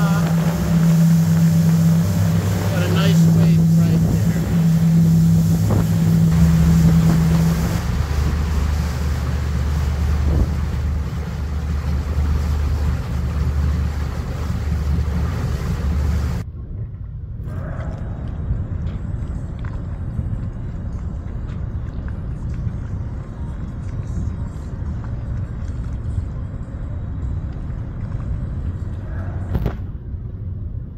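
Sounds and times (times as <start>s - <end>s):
water rushing: 0.0s - 16.4s
wind on microphone: 0.0s - 16.4s
boat engines droning: 0.0s - 30.9s
low rumble: 0.0s - 30.9s.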